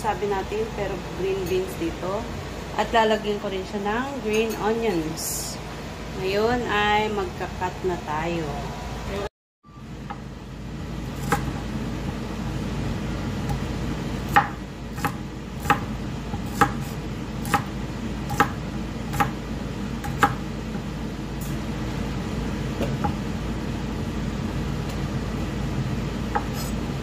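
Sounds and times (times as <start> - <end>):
steady low hum: 0.0 - 27.0
knife chopping on wooden board: 11.2 - 11.6, 14.3 - 17.7, 18.3 - 19.4, 20.0 - 20.9, 26.3 - 26.7.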